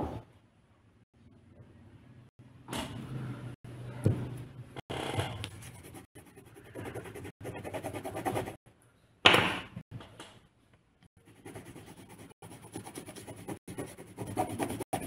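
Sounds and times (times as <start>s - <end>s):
coloured pencil scratching on paper: 5.5s - 8.6s, 11.2s - 15.0s.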